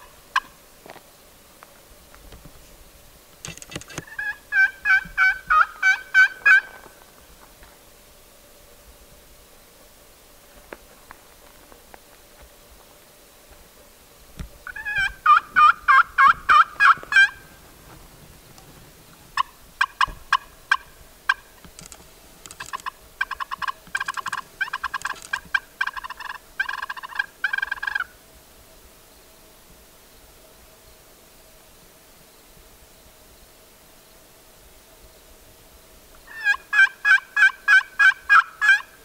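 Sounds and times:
turkey friction call yelps: 0.0s - 0.6s, 3.9s - 7.0s, 14.7s - 17.6s, 19.4s - 21.6s, 22.6s - 28.1s, 36.3s - 39.0s.

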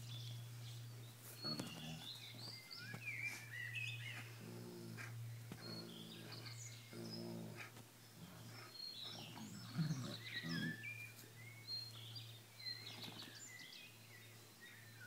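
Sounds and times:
small birds chirping: 0.0s - 15.0s
dogs growling at play: 1.3s - 2.6s, 3.5s - 11.0s.

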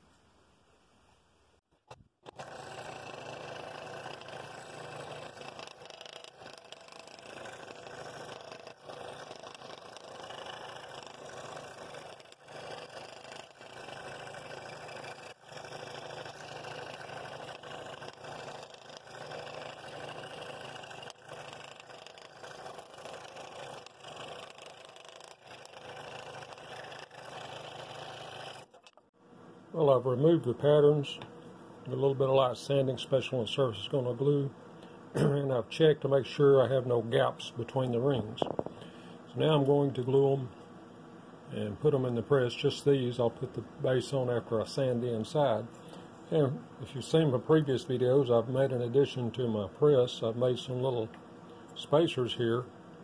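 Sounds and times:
scroll saw cutting wood: 2.2s - 29.0s.

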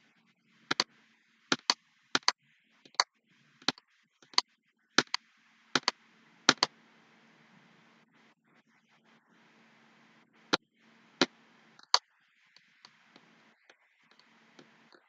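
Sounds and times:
faint steady hum: 0.0s - 15.0s
sharp clicks in pairs: 1.5s - 3.0s, 5.0s - 5.2s, 5.8s - 6.7s.

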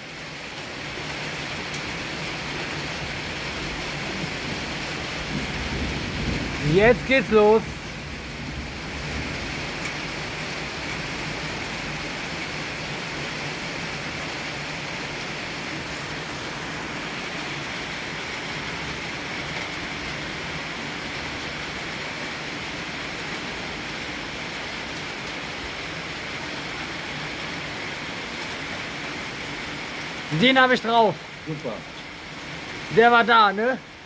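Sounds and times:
steady rain: 0.0s - 34.0s.

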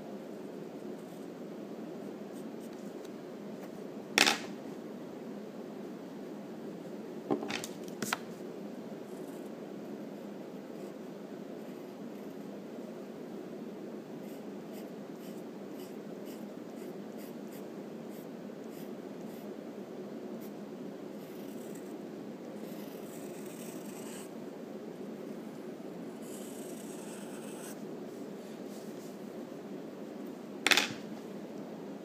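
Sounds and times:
steady low hum: 0.0s - 32.0s
pencil scratching on paper: 14.2s - 19.5s, 26.2s - 27.8s.

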